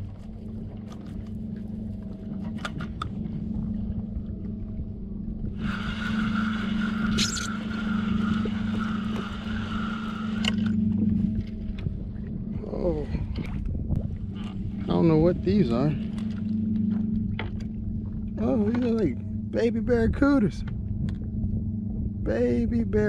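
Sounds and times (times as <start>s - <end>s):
steady low hum: 0.0s - 23.0s
fishing reel whirring: 5.8s - 11.0s.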